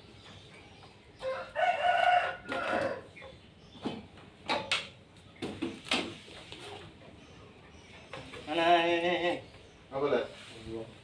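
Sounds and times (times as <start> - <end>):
rooster crowing: 1.2 - 3.1.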